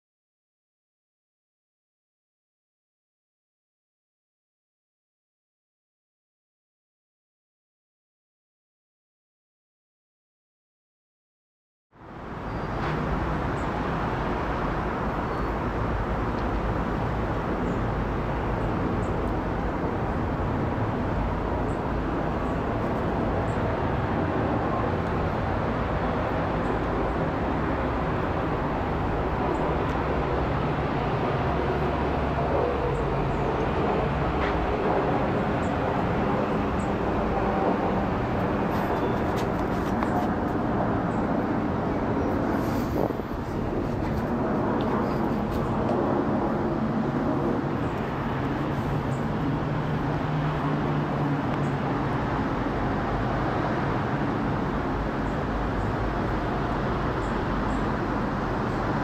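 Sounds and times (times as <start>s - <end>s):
jet airliner rumble overhead: 12.0s - 59.0s.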